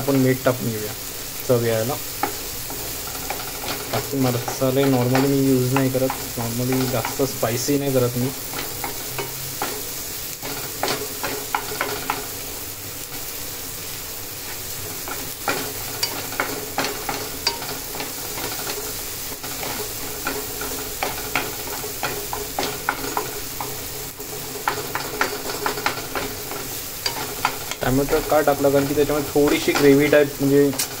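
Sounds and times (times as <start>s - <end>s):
vegetables sizzling in a pan: 0.0s - 31.0s
spatula knocking against pan: 2.2s - 7.4s, 15.1s - 30.0s.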